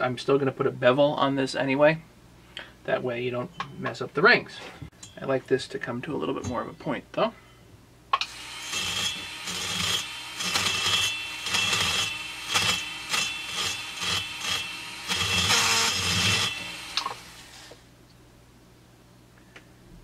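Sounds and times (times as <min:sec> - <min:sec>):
rotary tool grinding metal: 0:08.2 - 0:17.8.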